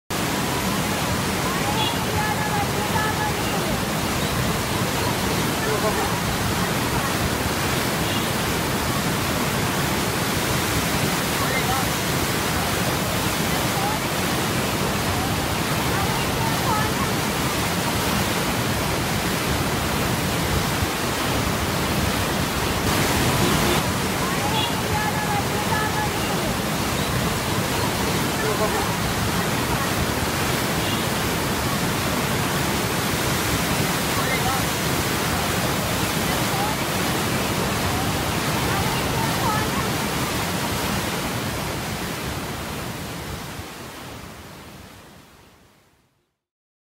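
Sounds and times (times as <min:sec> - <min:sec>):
floodwater rushing: 0:00.1 - 0:45.3.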